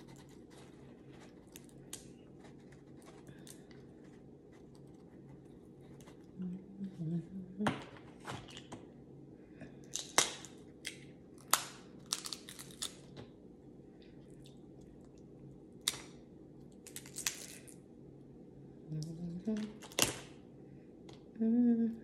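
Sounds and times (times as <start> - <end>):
shellfish shells cracking: 9.8 - 13.3, 15.8 - 17.8, 19.7 - 20.4.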